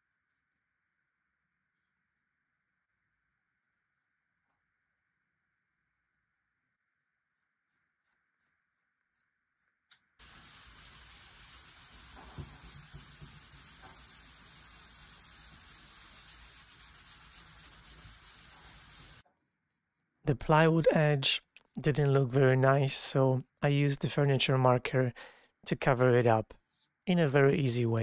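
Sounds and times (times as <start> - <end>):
pad scrubbing wooden panel: 10.2 - 19.2.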